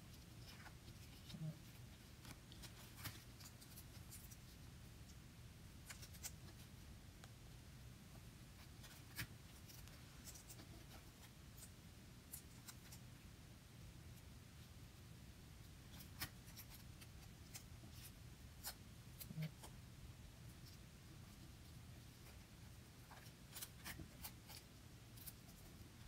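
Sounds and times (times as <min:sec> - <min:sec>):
faint low room hum: 0:00.0 - 0:26.0
paper cut-outs rustling: 0:22.2 - 0:26.0.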